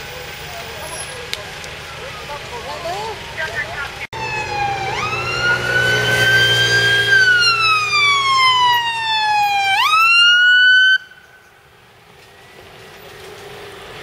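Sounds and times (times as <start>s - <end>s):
fire engine siren wailing: 0.0s - 11.4s
truck engine hum: 0.0s - 14.0s.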